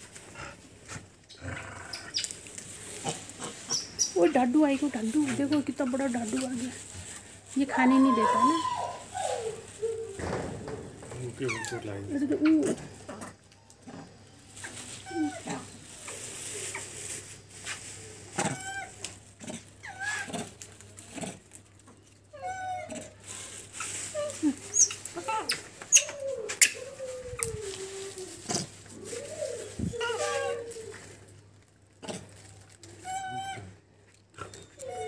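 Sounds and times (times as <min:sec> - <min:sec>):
dog whining and yelping: 0:07.9 - 0:10.1.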